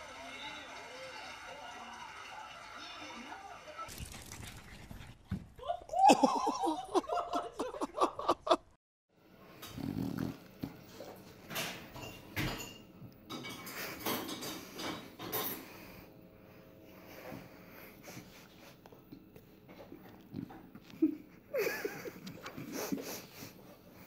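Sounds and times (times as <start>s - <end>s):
dog snuffling and snorting: 9.7s - 11.1s.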